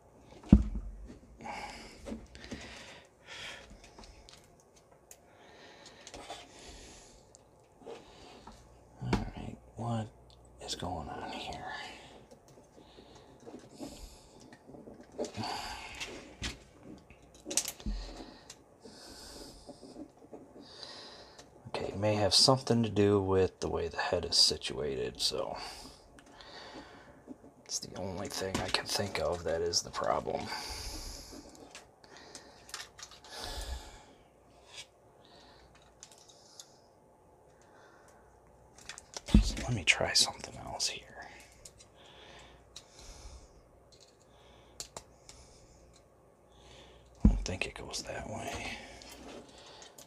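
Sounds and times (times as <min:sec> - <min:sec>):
soft breaths: 0:00.2 - 0:23.1, 0:25.2 - 0:50.0
plastic parts clicking and knocking: 0:12.3 - 0:18.6, 0:31.4 - 0:33.3, 0:35.6 - 0:36.7, 0:38.7 - 0:39.8, 0:43.9 - 0:46.1
plastic pieces clicking: 0:43.9 - 0:46.0.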